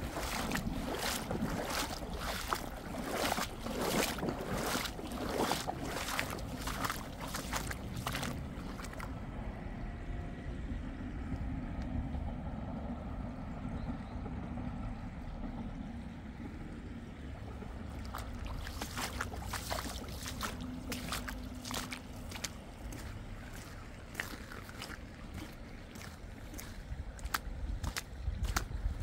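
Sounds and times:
water rushing in stream: 0:00.0 - 0:09.5, 0:17.2 - 0:29.0.

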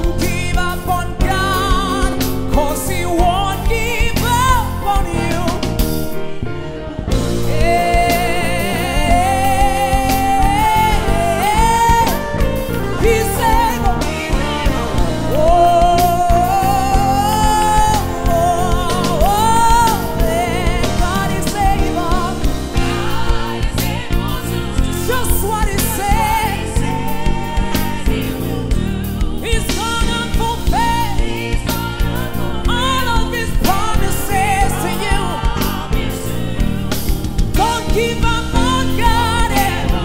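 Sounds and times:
man singing with vibrato: 0:00.0 - 0:05.8, 0:07.4 - 0:36.8
live band accompaniment: 0:00.0 - 0:40.0.

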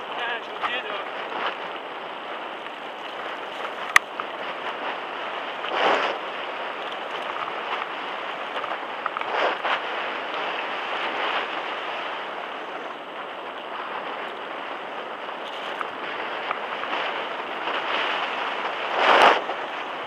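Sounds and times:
wind on microphone: 0:00.0 - 0:20.0
tyre noise on gravel: 0:02.5 - 0:10.8.

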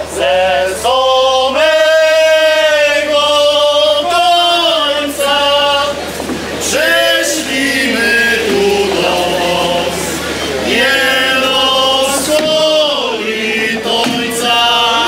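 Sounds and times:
group of voices singing: 0:00.0 - 0:15.0.

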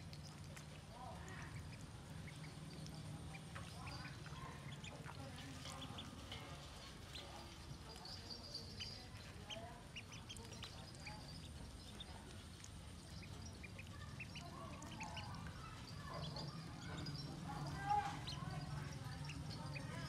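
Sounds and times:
ducklings peeping: 0:00.0 - 0:20.0.

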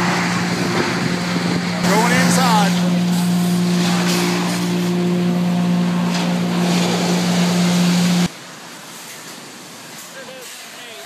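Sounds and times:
sawmill machinery droning: 0:00.0 - 0:08.3.

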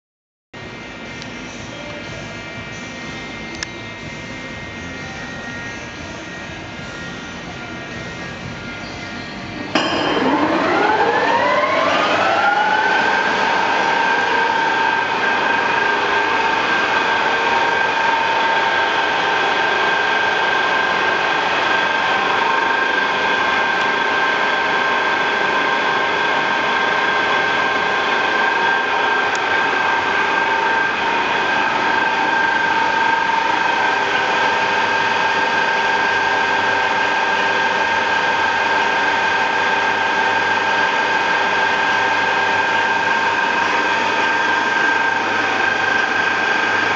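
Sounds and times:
spindle drive rising whine: 0:00.6 - 0:46.9
lathe humming: 0:09.7 - 0:46.9.

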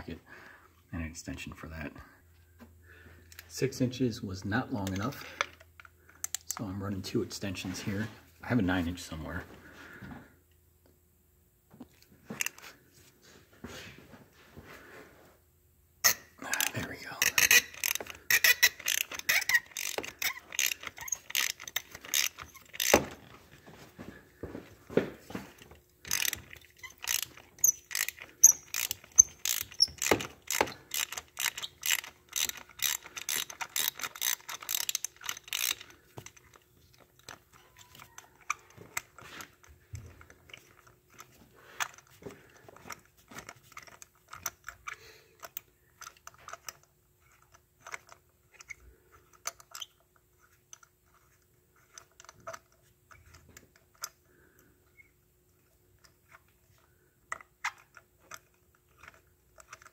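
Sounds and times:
ratchet wrench clicking: 0:16.0 - 0:23.2, 0:26.1 - 0:36.6.

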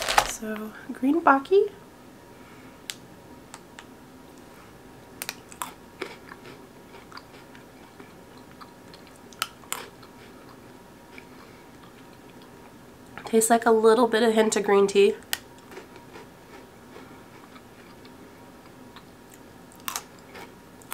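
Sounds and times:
biscuit sticks crunching: 0:00.0 - 0:00.4, 0:05.2 - 0:11.3, 0:15.6 - 0:20.9.

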